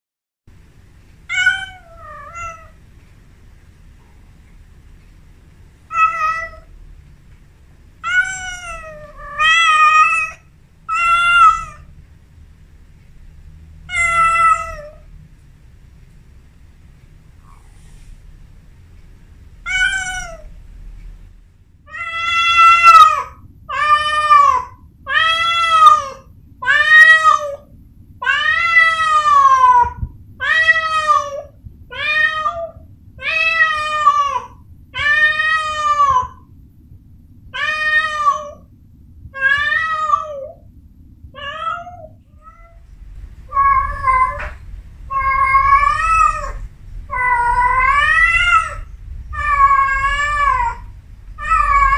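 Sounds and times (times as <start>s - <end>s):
cat yowling: 1.3s - 2.8s, 5.9s - 6.7s, 8.0s - 11.9s, 13.9s - 15.0s, 19.6s - 20.5s, 21.9s - 36.4s, 37.6s - 38.6s, 39.3s - 40.6s, 41.4s - 42.8s, 43.5s - 51.9s.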